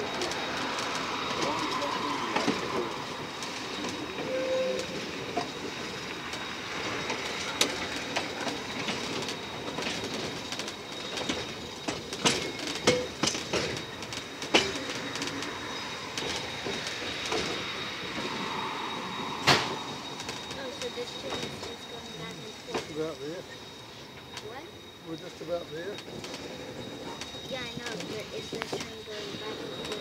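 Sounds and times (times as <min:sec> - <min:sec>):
wheels clicking over rail joints: 0:00.0 - 0:18.4, 0:25.9 - 0:30.0
train wheel squeals: 0:00.0 - 0:30.0
train wheels rumbling: 0:00.0 - 0:30.0.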